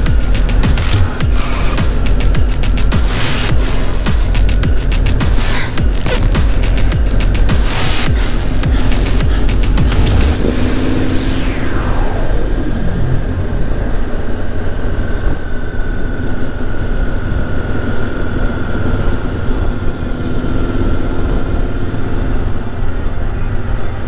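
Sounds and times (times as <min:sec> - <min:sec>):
motorcycle engines rumbling: 0:00.0 - 0:24.0
faint high whine: 0:08.0 - 0:24.0.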